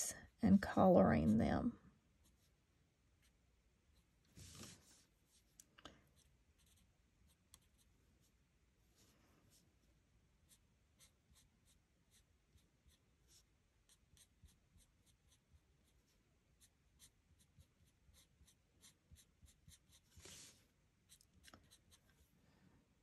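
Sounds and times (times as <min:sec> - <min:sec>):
marker scratching on cardstock: 0:06.2 - 0:07.9, 0:10.5 - 0:16.0, 0:16.6 - 0:20.5.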